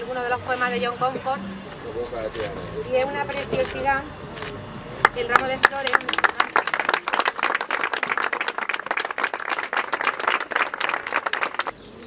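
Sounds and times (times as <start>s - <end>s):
group of people clapping: 5.0s - 11.7s.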